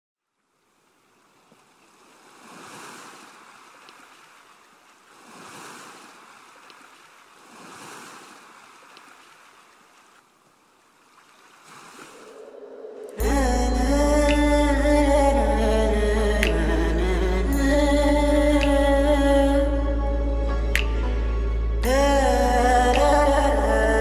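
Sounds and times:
faint sea waves washing in: 0.6s - 19.6s.

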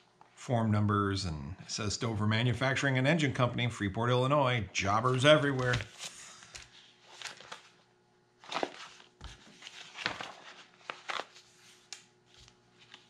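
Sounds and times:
plastic sheet protectors crinkling: 5.0s - 6.2s.

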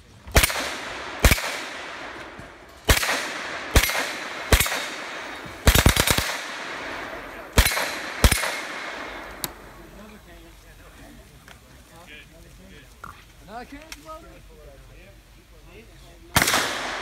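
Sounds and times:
submachine gun shots: 0.3s - 2.0s, 2.9s - 9.3s, 16.4s - 17.0s.

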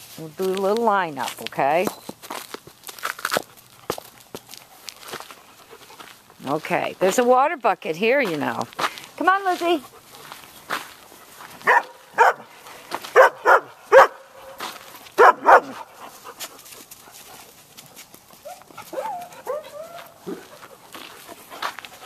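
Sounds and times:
puppy barking: 11.6s - 12.5s, 13.1s - 14.6s, 15.2s - 15.9s, 18.4s - 20.6s
soft wavering dog calls: 18.4s - 20.6s.

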